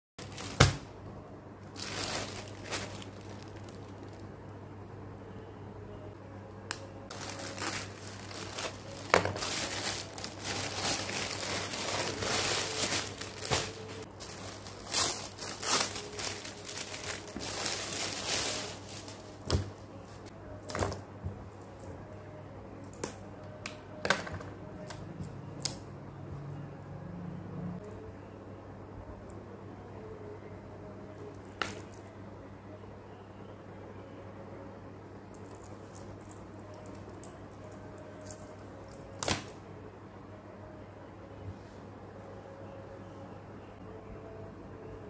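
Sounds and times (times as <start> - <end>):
plastic packaging crinkling: 0.2 - 0.8, 1.7 - 4.3, 7.1 - 19.6.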